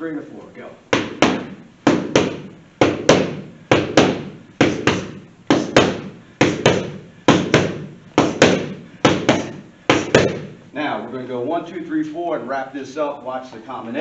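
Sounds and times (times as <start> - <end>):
boxing gloves smacking punch mitts: 0.9 - 10.6.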